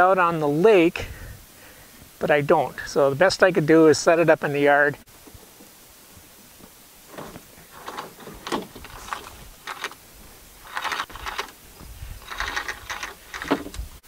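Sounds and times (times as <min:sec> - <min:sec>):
tarp sail rustling: 0:07.0 - 0:14.0
rope rattling through pulley: 0:07.7 - 0:10.0, 0:10.6 - 0:11.6, 0:12.2 - 0:13.8.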